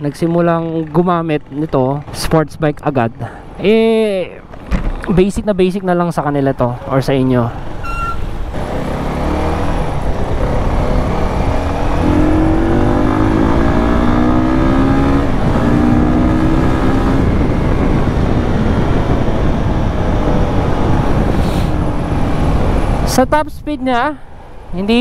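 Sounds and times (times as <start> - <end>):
motorcycle engine revving: 7.4 - 23.1
wind rush on microphone: 7.6 - 25.0.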